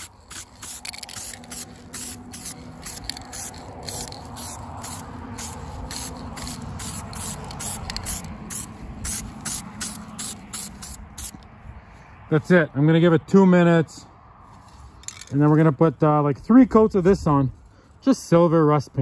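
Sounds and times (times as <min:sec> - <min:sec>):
aerosol can spraying: 0:00.0 - 0:11.4.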